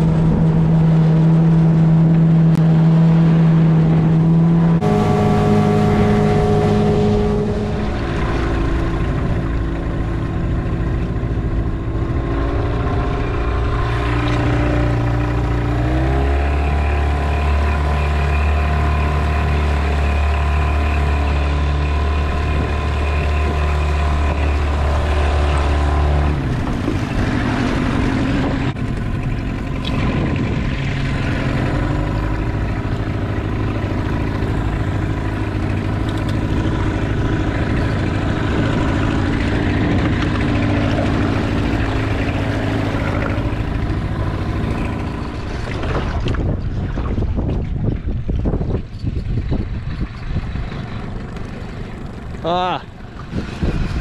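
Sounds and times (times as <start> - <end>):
outboard motor running: 0.0 - 54.0.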